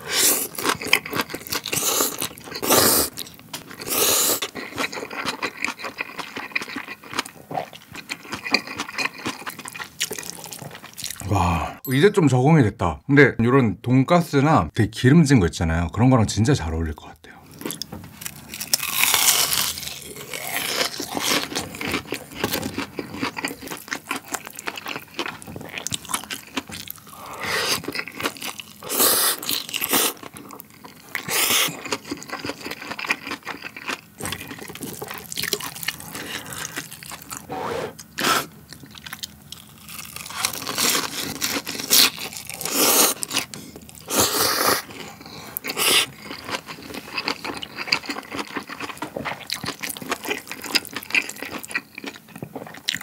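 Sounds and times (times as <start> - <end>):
crunching and chewing: 0.0 - 11.3, 17.5 - 53.0
slurping noodles: 28.8 - 30.2, 31.2 - 31.9.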